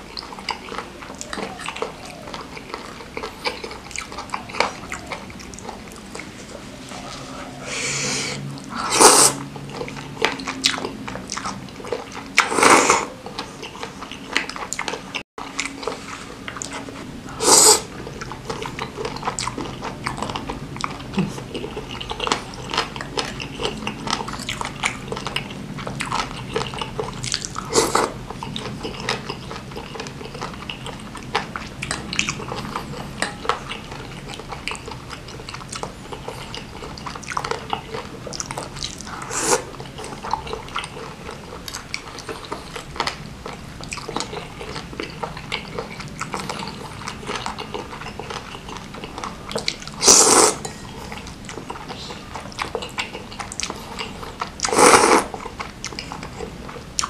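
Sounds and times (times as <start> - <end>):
wet chewing: 0.0 - 57.0
slurping noodles: 6.2 - 9.5, 12.4 - 13.9, 15.8 - 19.7, 26.0 - 30.1, 38.4 - 42.9, 49.5 - 50.7, 53.6 - 55.4.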